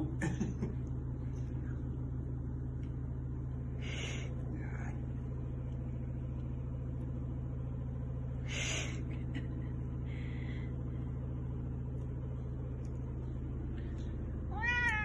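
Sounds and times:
low hum of pitched tones: 0.0 - 15.0.

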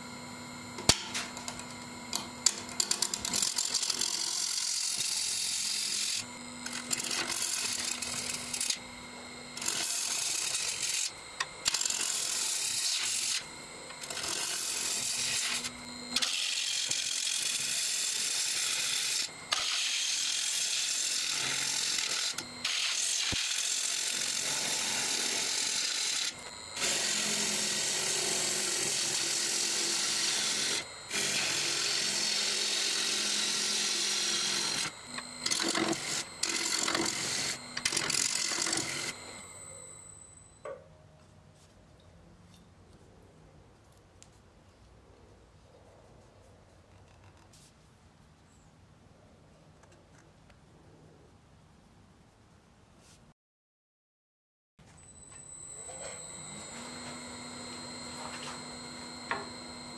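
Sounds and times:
low lathe hum: 0.0 - 40.7, 55.0 - 59.9
lathe gouge cutting wood: 2.4 - 39.7, 55.7 - 59.9.

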